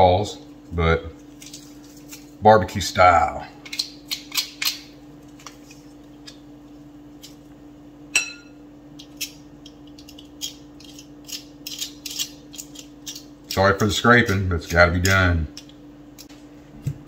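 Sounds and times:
ringing clink on glass bowl: 8.2 - 8.6.

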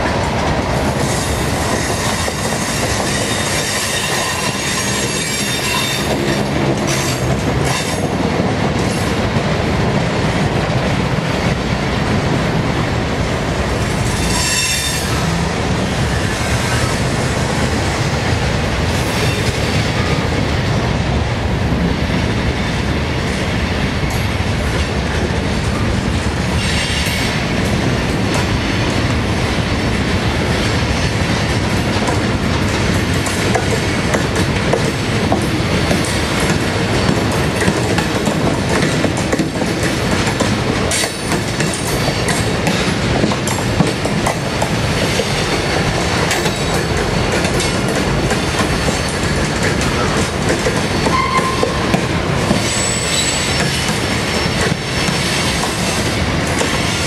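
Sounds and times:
train wheels rumbling on rails: 0.0 - 57.0
high wheel squeal: 3.1 - 6.2, 14.1 - 15.4, 51.0 - 51.8, 52.6 - 54.5.

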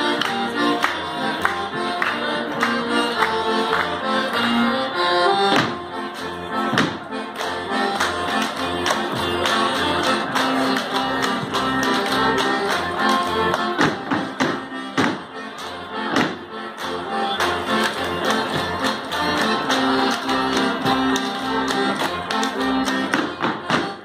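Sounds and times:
folk dance music: 0.0 - 24.0
hand slaps and claps: 5.5 - 24.0.

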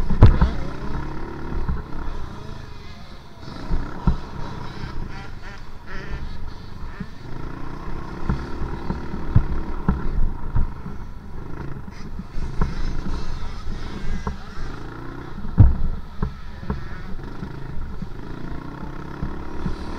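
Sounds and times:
low knocks of bike on dirt: 0.0 - 7.2, 8.0 - 14.6, 15.2 - 18.1
dirt bike engine revving: 0.0 - 19.9.

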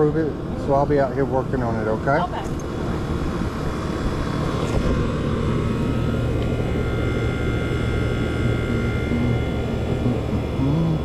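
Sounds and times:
air conditioner humming: 0.0 - 11.0
faint whining tones: 0.0 - 11.0.

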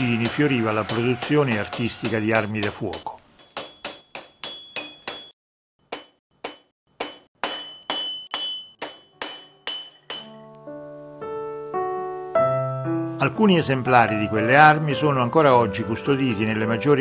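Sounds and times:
hammer striking iron on anvil: 0.0 - 10.4
piano music: 8.2 - 17.0.

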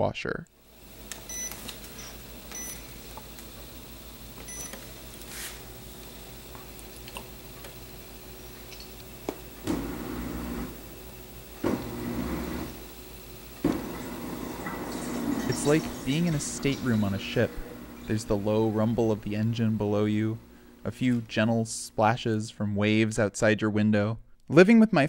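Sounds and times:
dishwasher water pump surging: 0.6 - 21.4
low steady hum: 0.6 - 23.2
dishwasher control panel beeps: 1.3 - 2.9, 4.4 - 4.8.

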